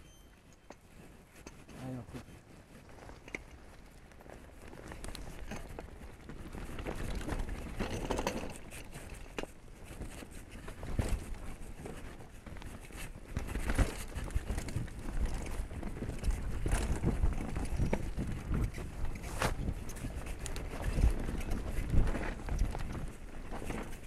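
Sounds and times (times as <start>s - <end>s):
bike knocking and rattling: 0.0s - 24.0s
bike tyres crunching over stones: 2.8s - 8.8s, 12.4s - 24.0s
wind buffeting microphone: 9.8s - 24.0s.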